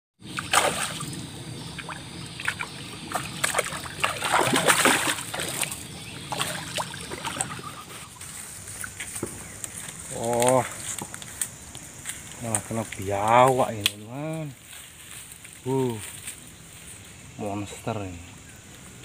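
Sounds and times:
water splashing and sloshing: 0:00.2 - 0:11.5.

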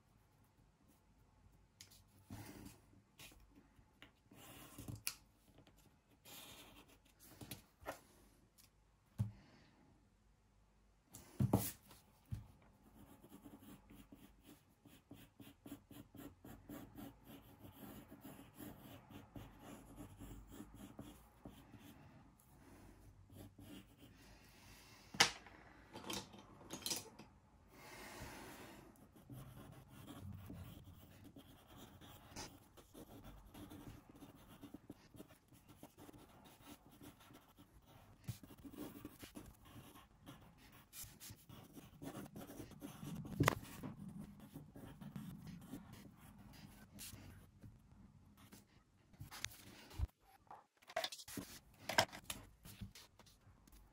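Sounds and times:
pencil sketching on paper: 0:06.2 - 0:07.2, 0:12.9 - 0:22.0, 0:23.3 - 0:24.1, 0:28.9 - 0:47.6.

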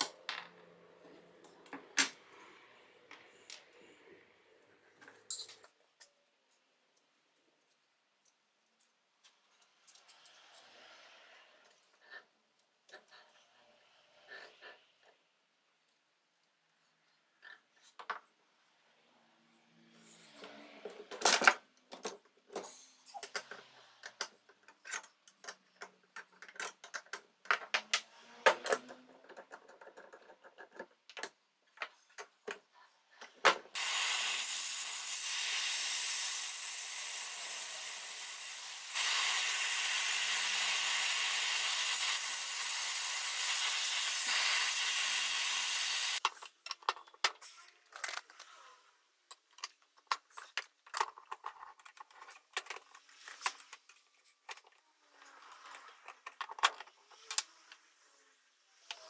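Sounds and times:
steady hiss: 0:33.8 - 0:46.2.

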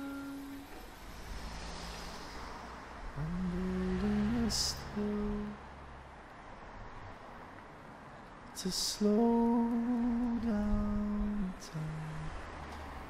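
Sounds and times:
person humming: 0:00.0 - 0:00.8, 0:03.2 - 0:05.6, 0:08.6 - 0:12.4.

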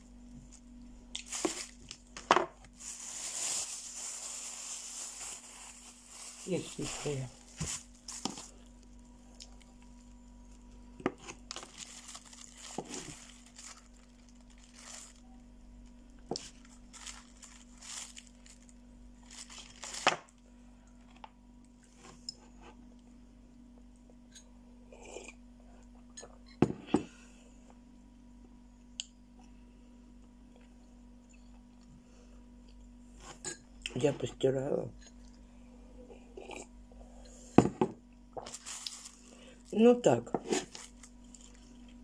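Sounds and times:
faint steady hum: 0:00.0 - 0:42.0
plastic bag crinkling: 0:01.1 - 0:10.6, 0:11.2 - 0:20.4, 0:38.4 - 0:42.0.

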